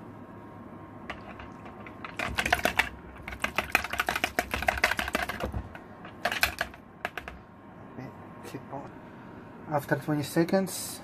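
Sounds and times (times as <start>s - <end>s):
whisk clicking against bowl: 1.1s - 7.4s.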